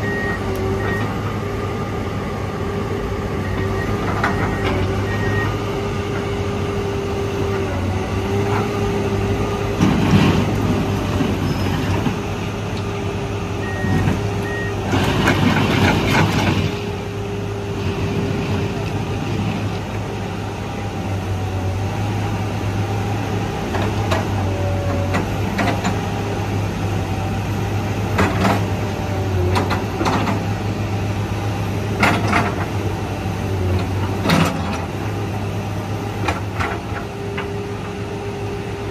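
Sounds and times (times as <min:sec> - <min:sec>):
heavy machinery engine running: 0:00.0 - 0:38.9.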